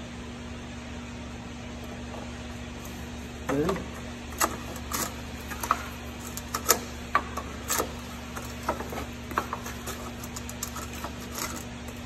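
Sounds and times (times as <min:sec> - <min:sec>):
steady low hum: 0:00.0 - 0:12.0
ratchet metal clicks and knocks: 0:04.4 - 0:11.6.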